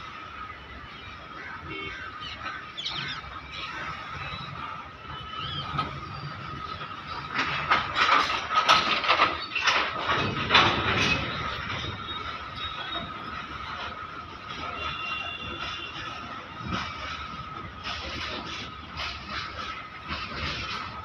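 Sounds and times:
freight wagons rumbling on rails: 0.0 - 21.0
wheels clattering over rail joints: 0.0 - 21.0.

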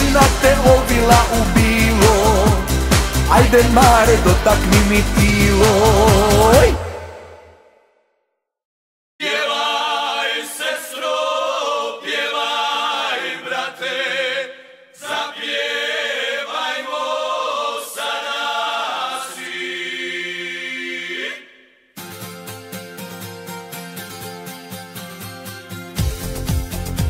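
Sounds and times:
group singing unaccompanied: 0.0 - 7.2, 9.2 - 21.6
song ending: 0.0 - 7.8.

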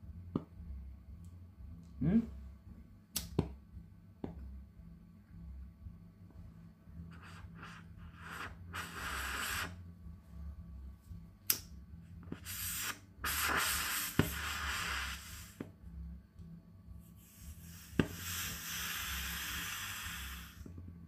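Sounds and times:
lighter clicks and strikes: 3.1 - 3.5, 11.4 - 11.7
gas hissing: 7.1 - 9.8, 11.5 - 15.7, 17.2 - 20.8.

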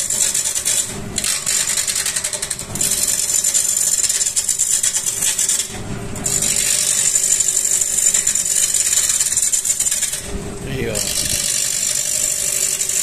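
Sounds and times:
lathe tool cutting wood: 10.8 - 13.0.

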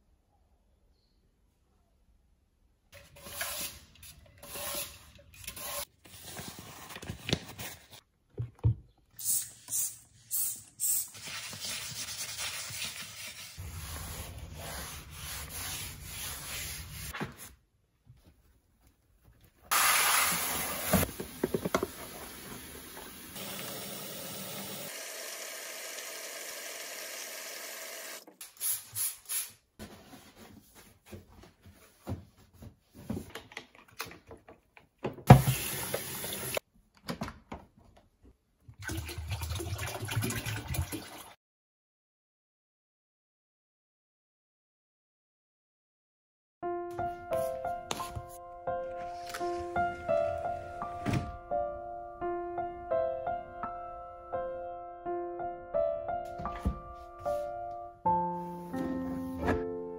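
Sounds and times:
sponge scrubbing on tiles: 11.1 - 17.2.

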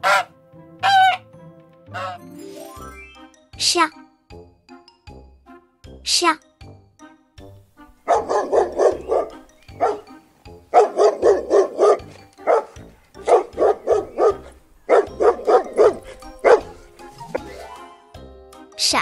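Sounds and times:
dog barking: 0.0 - 1.2, 2.0 - 2.2, 8.0 - 17.5.

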